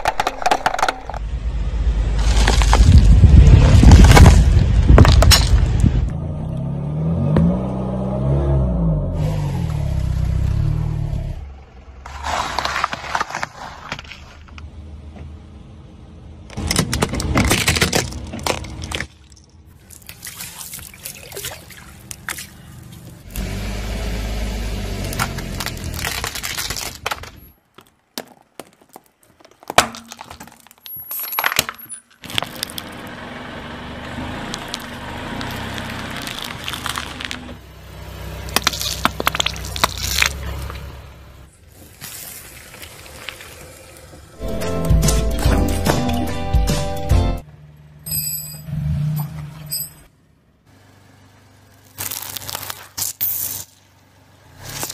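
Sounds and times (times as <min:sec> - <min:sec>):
car engine rumble: 0:00.0 - 0:20.1, 0:20.9 - 0:29.3, 0:30.0 - 0:54.9
tyre crushing objects crackling: 0:02.2 - 0:05.7, 0:12.1 - 0:14.6, 0:25.0 - 0:33.0, 0:34.5 - 0:37.6, 0:38.4 - 0:40.9, 0:51.8 - 0:53.7.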